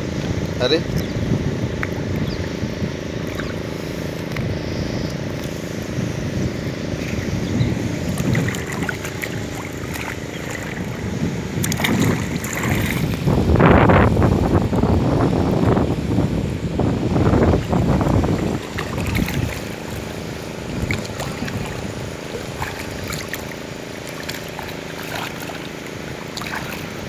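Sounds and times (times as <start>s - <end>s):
wind on microphone: 0.0s - 27.0s
water splashing: 1.7s - 4.5s, 7.0s - 13.9s, 17.2s - 27.0s
water sloshing: 1.7s - 6.0s, 7.0s - 13.8s, 17.2s - 27.0s.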